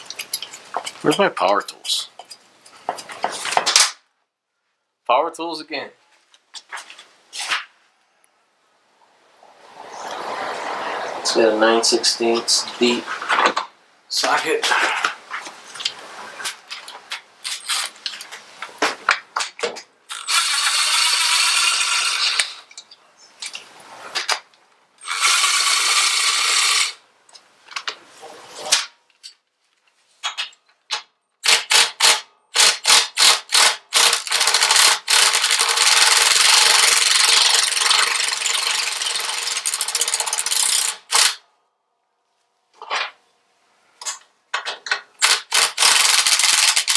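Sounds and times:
cordless driver running: 20.1s - 22.6s, 25.0s - 27.0s, 33.5s - 41.3s, 45.2s - 46.9s.

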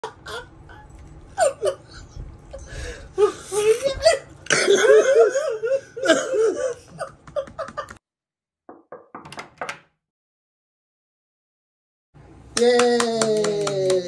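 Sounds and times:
hearty laughter: 0.0s - 8.0s.

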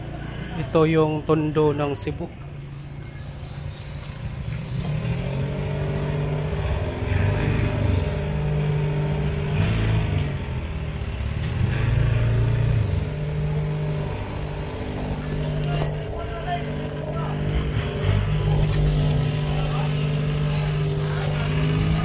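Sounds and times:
small truck engine running: 0.0s - 22.0s.

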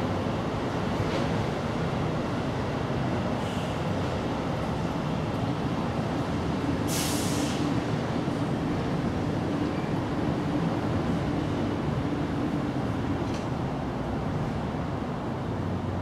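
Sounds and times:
short hiss: 6.9s - 7.6s.

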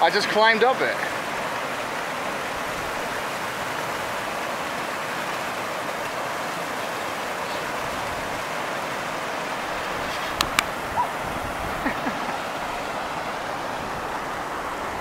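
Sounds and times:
river whitewater rushing: 0.0s - 15.0s.

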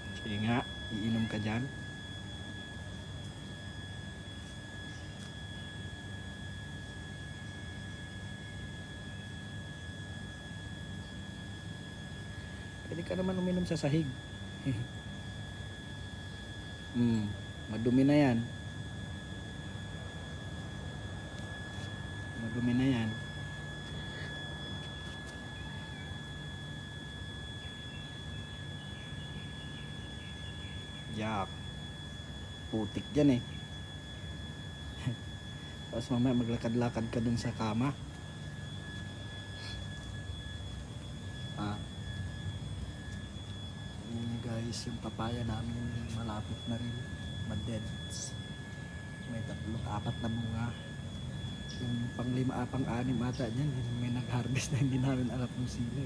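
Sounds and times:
high-pitched whine: 0.0s - 56.0s
steady hum: 0.0s - 56.0s
faint chirps: 10.5s - 18.5s, 19.6s - 56.0s.

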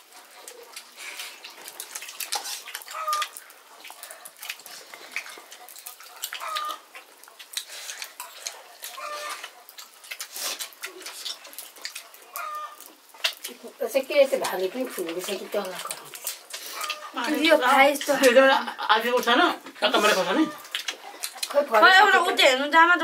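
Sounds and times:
chewing and plate clicks: 0.4s - 13.6s, 14.4s - 17.4s, 20.5s - 21.6s.

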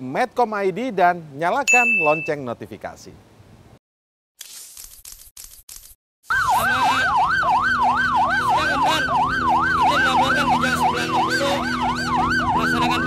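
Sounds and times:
police siren yelp: 6.3s - 13.0s.

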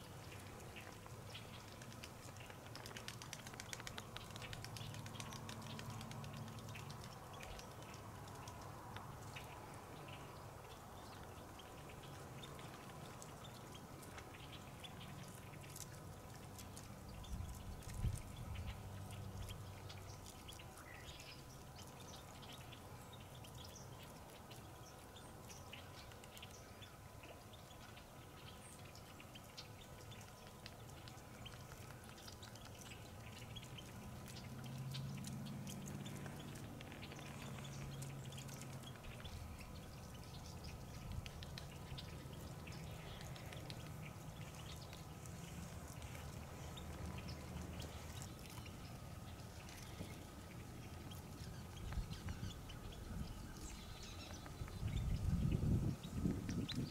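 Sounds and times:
faint water splashing: 0.0s - 55.3s
low hum: 0.0s - 56.9s.

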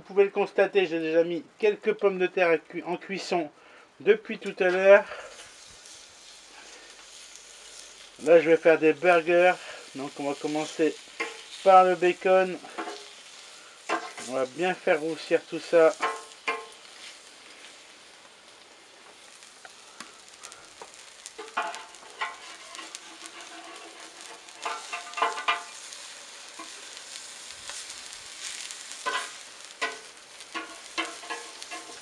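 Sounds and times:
bacon sizzling on grill: 4.1s - 32.0s
tongs scraping metal grate: 7.1s - 17.1s, 20.2s - 32.0s.

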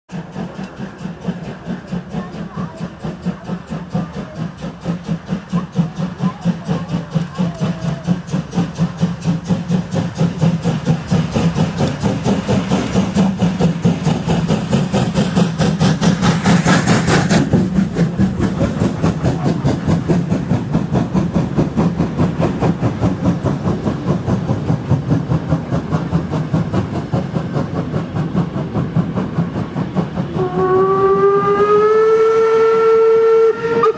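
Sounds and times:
steam locomotive exhaust beating: 0.1s - 33.9s
steam whistle: 30.3s - 33.9s.

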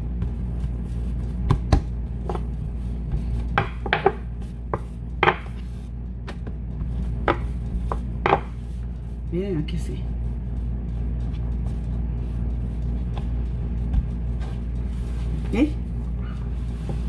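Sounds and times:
hands patting dough: 0.0s - 17.0s
steady low hum: 0.0s - 17.0s
rolling pin knocking on wooden board: 3.5s - 5.6s, 6.3s - 8.6s.

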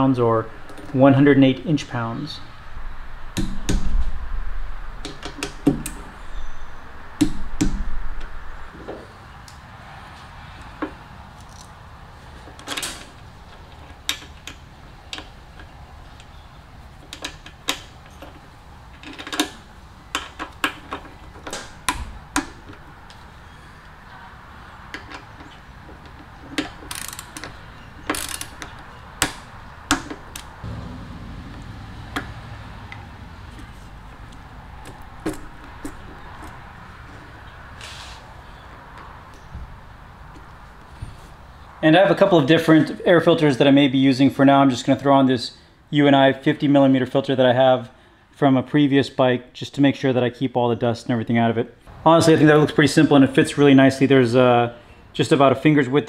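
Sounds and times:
low steady hum: 30.6s - 36.6s.

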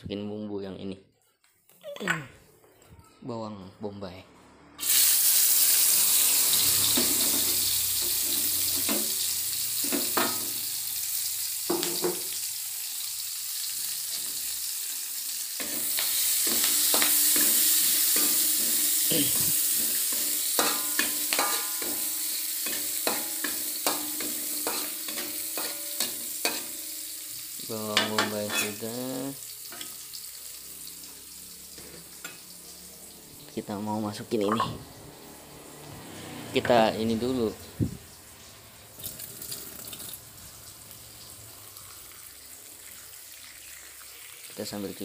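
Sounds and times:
onion sizzling in oil: 4.8s - 45.0s
metal spatula scraping pan: 15.6s - 26.9s, 28.1s - 28.8s.

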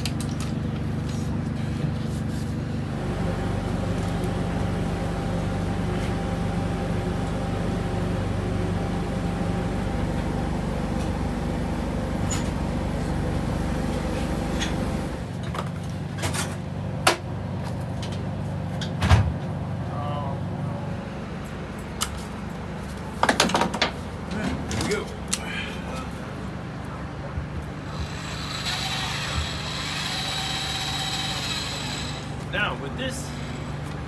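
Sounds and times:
machine hum with steady tones: 0.0s - 34.0s.

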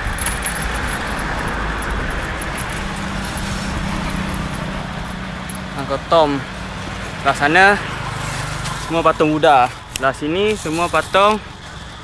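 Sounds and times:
low engine hum: 0.0s - 9.1s
minivan passing: 0.0s - 12.0s
road traffic: 0.0s - 12.0s.

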